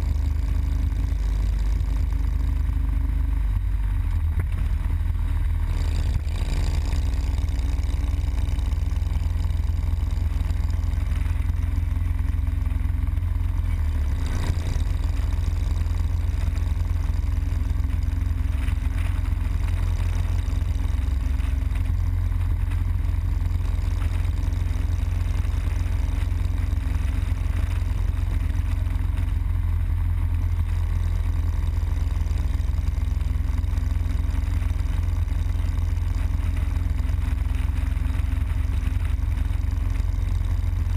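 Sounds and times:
motorcycle engine cruising: 0.0 - 40.9.

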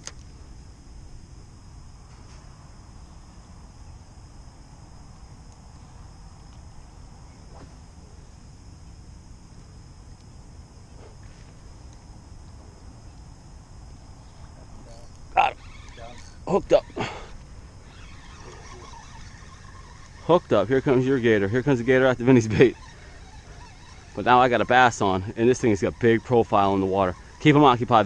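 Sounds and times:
insects chirring: 0.0 - 28.0
faint ticks: 6.3 - 6.7, 14.9 - 28.0.

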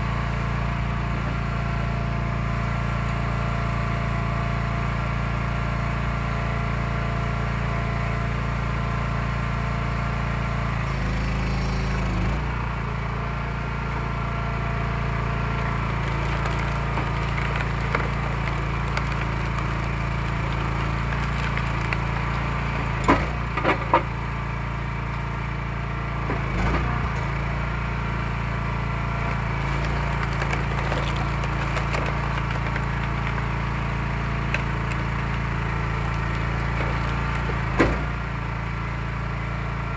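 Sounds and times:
log splitter engine running: 0.0 - 39.9
wood splitting and cracking: 14.9 - 39.4.

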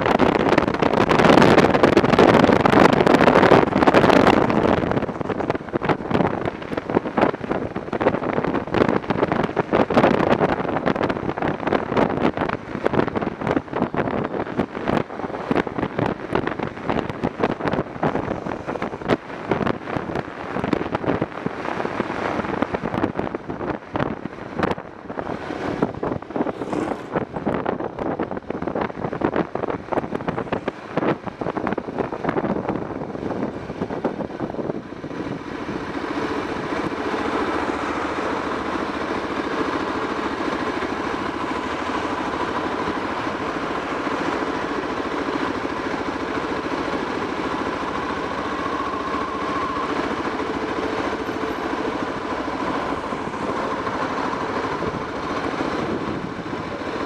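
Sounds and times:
motorcycle engine running: 0.0 - 28.0, 29.8 - 57.0
wind buffeting on microphone: 0.0 - 57.0.

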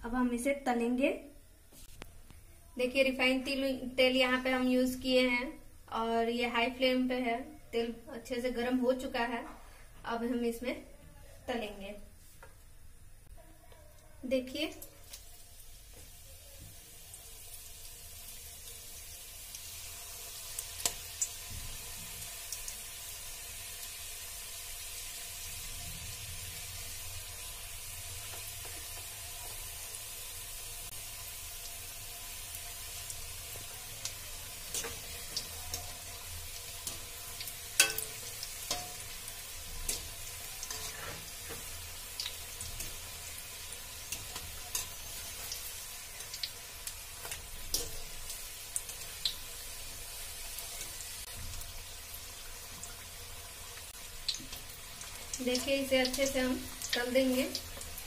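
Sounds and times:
spring rolls sizzling in oil: 14.2 - 58.0.

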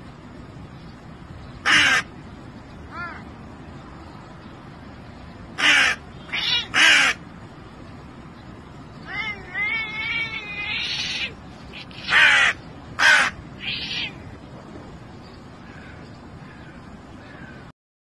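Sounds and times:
crow cawing: 1.6 - 2.1, 5.6 - 7.2, 9.1 - 14.2, 15.6 - 17.7
cat warbling call: 5.6 - 7.2, 9.0 - 14.3.

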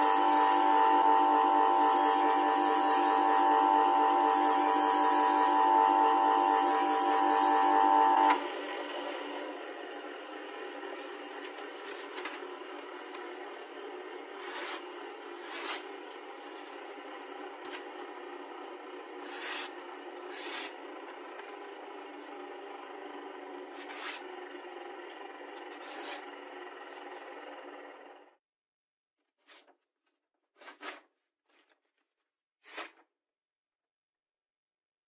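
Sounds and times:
steady machine hum: 0.0 - 8.3
knife slicing paper: 15.4 - 15.9, 25.7 - 26.2, 30.5 - 31.8, 32.6 - 33.1.

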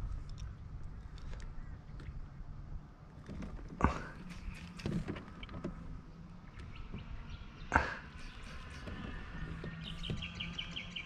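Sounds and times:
faint clicks of gear: 0.1 - 2.2.

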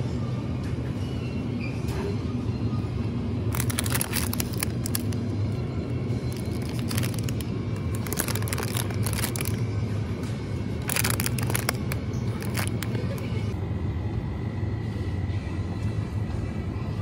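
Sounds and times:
steady low hum: 0.0 - 17.0
music playing: 2.8 - 13.6
plastic food packaging crinkling: 3.5 - 5.3, 6.2 - 9.7, 10.7 - 13.4.

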